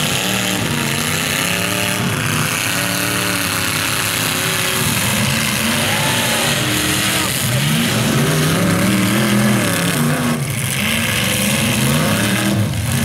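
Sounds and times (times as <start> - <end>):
car engines revving: 0.0 - 13.0
loud steady din: 0.5 - 10.4.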